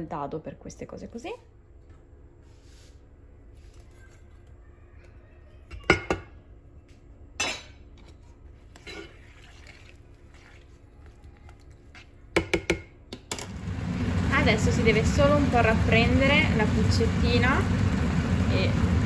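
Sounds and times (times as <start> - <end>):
peas cooking in water: 8.6 - 12.4, 13.4 - 19.0
spoon knocking against a pan: 12.3 - 13.0.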